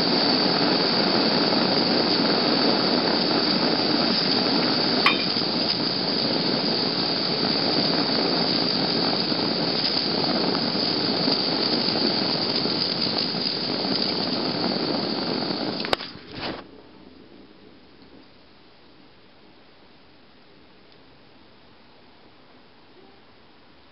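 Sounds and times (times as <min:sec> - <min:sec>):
blowtorch flame hissing: 0:00.0 - 0:17.6.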